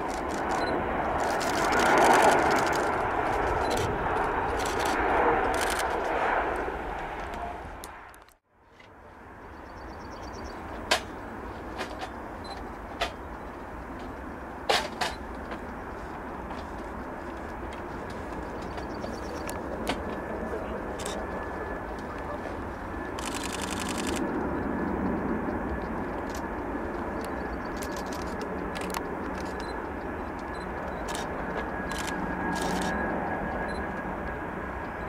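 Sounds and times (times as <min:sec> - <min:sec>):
jet plane on approach: 0:00.0 - 0:35.0
jet plane passing low: 0:00.0 - 0:35.0
sharp clicks: 0:23.2 - 0:24.4, 0:27.2 - 0:33.0.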